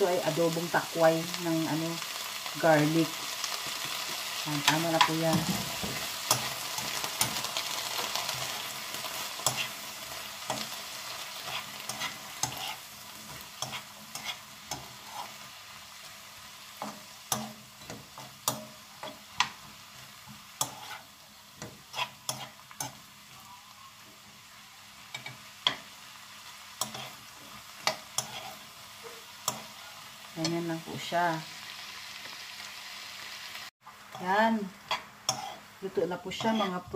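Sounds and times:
vegetables sizzling in pan: 0.0 - 36.9
utensil scraping pan: 3.6 - 15.5, 16.8 - 23.0, 26.8 - 30.7, 34.2 - 35.7, 36.3 - 36.9.

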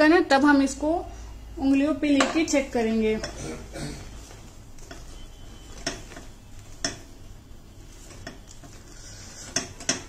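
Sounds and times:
wooden spatula scraping a pan: 7.9 - 10.0.

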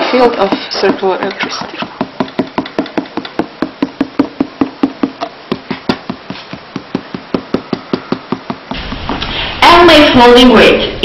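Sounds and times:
rapid tapping on card: 0.4 - 8.8.

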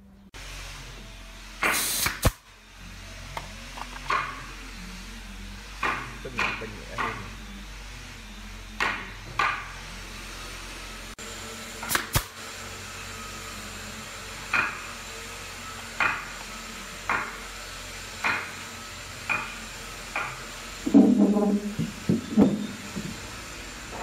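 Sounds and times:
nail gun shots: 1.6 - 2.4, 11.8 - 12.4.

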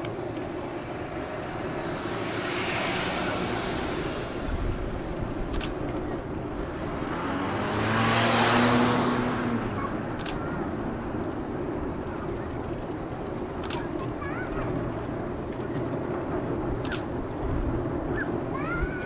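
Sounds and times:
vehicle engine passing: 0.0 - 13.2
water noise: 0.0 - 19.0
wind: 0.0 - 19.0.

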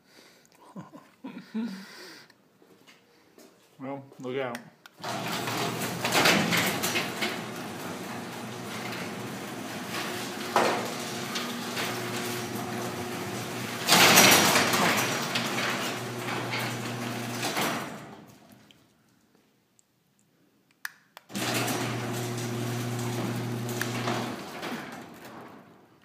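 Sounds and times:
door panels rattling: 5.0 - 18.5, 21.4 - 25.8
garage door bang and rattle: 5.0 - 18.6, 21.3 - 25.9
garage door opener humming: 5.0 - 18.6, 21.3 - 25.8.

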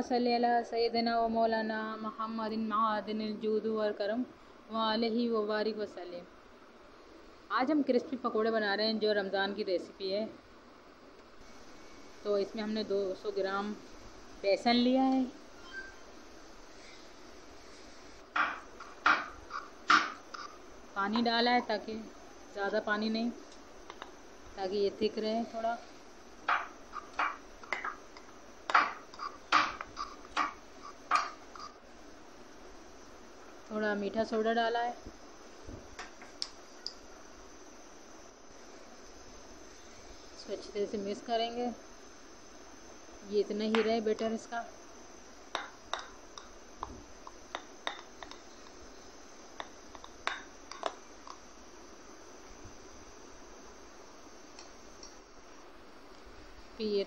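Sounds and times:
spoon stirring batter in bowl: 45.6 - 48.8.

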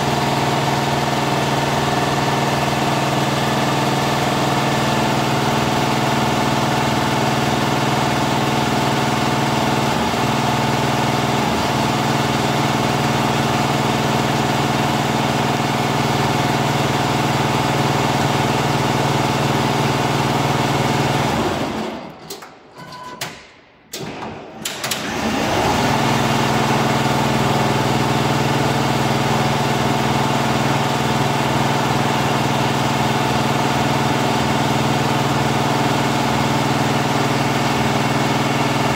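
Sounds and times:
machine clicks: 22.2 - 25.1.

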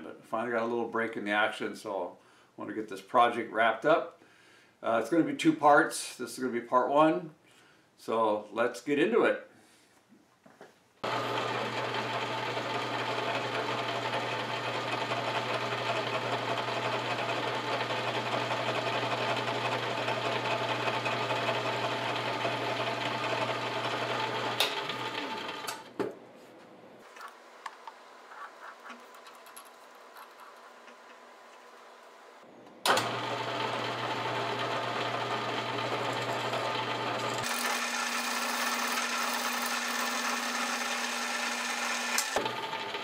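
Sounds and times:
drill working into metal plate: 11.0 - 25.9, 32.9 - 43.0
milling machine spindle humming: 11.0 - 25.9, 27.1 - 43.0
motor winding down: 11.0 - 25.9, 30.4 - 43.0.

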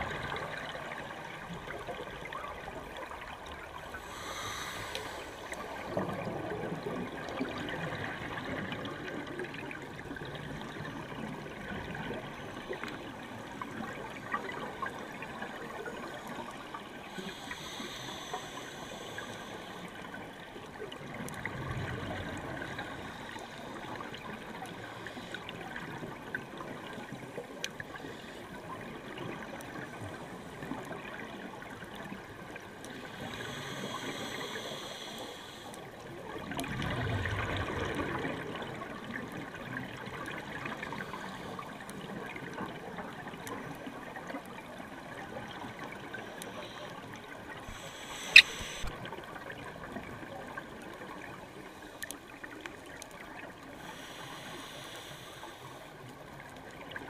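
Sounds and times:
underwater watery hiss: 3.2 - 7.5, 13.7 - 20.4, 21.4 - 27.1, 27.9 - 31.9, 32.5 - 36.0, 39.8 - 42.8, 45.5 - 49.2, 53.6 - 56.9
scuba regulator inhalation hiss: 4.0 - 5.5, 17.2 - 20.0, 33.0 - 35.7, 47.6 - 48.9, 53.8 - 55.8
sharp click: 48.3 - 48.9.

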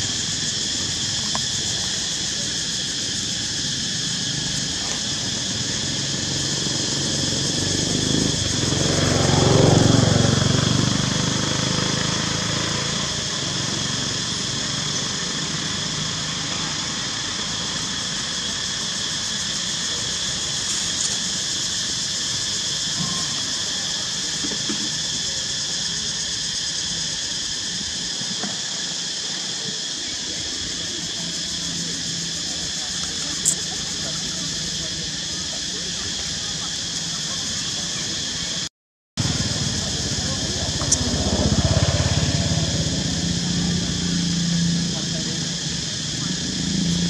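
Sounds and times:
forest insects droning: 0.0 - 47.0
motor vehicle passing: 5.7 - 14.5, 39.2 - 47.0.

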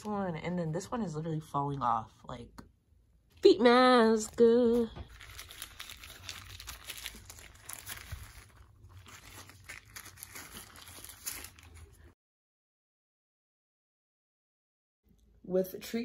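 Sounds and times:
plastic crinkling and rustling: 4.1 - 12.2.

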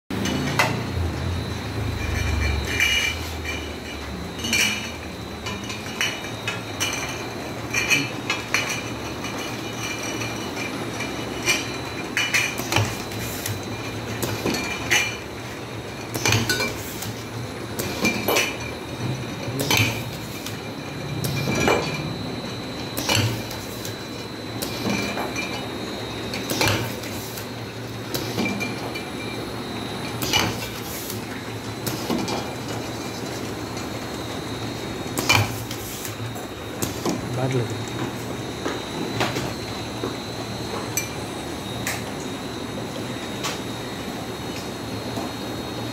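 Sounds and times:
machine hum: 0.1 - 45.9
glass bottles clinking: 1.8 - 15.3, 16.0 - 16.9, 17.8 - 22.2, 23.0 - 25.8, 26.4 - 29.4.

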